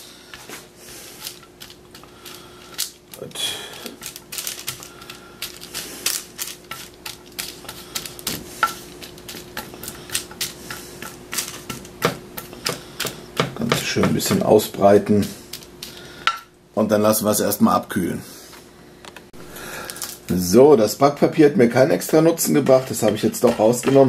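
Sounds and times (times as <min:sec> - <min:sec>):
nuts clattering in a dish: 0:01.2 - 0:12.2, 0:19.8 - 0:20.3
spatula scraping a ceramic dish: 0:21.9 - 0:24.0.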